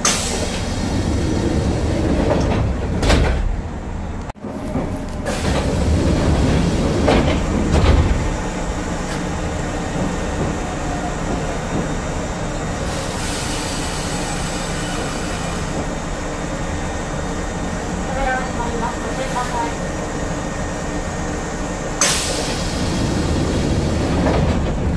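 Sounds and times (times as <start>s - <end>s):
train car running noise: 0.0s - 24.9s
train sliding doors opening: 0.0s - 24.9s
air hissing: 12.1s - 15.9s, 22.0s - 24.2s.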